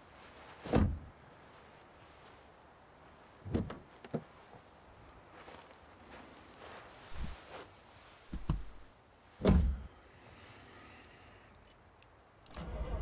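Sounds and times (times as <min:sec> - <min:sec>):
car door shutting: 0:00.7 - 0:01.0, 0:09.4 - 0:09.8
car engine starting and running: 0:12.5 - 0:13.0.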